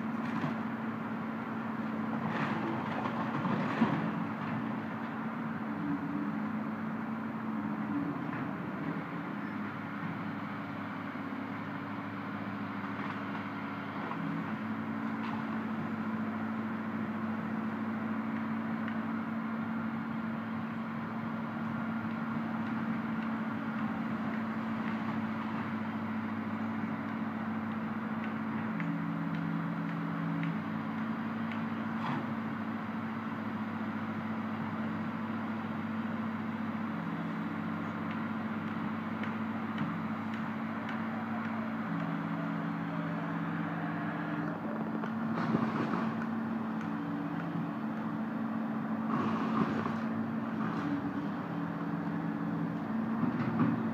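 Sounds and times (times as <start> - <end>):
excavator diesel engine running: 0.0 - 53.9.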